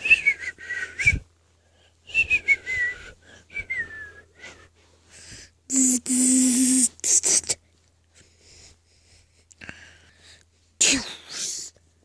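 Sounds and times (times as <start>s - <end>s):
person making hissing mouth noises: 5.7s - 7.6s, 10.8s - 11.8s.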